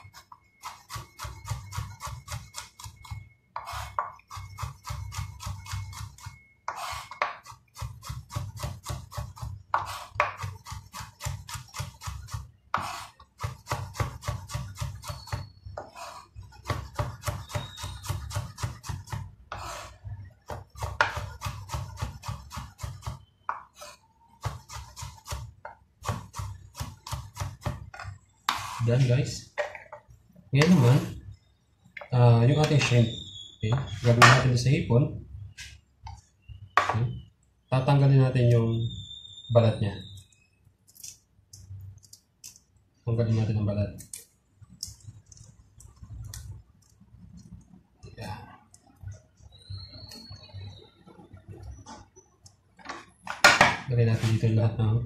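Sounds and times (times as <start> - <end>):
knife chopping on wooden board: 0.1 - 19.9, 20.5 - 28.8.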